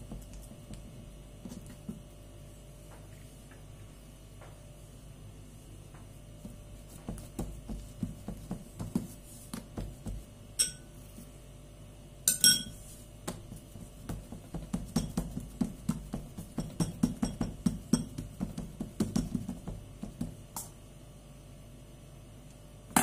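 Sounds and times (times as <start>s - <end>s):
hands patting dough: 0.0s - 2.2s, 5.8s - 11.4s, 12.8s - 20.8s
metal spoon clinking glass bowl: 10.6s - 10.9s, 12.3s - 12.8s.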